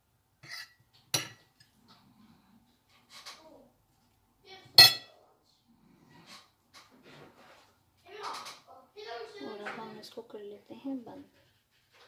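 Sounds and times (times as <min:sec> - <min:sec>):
metal spoon clinking on ceramic dish: 0:00.4 - 0:01.5, 0:04.8 - 0:05.1.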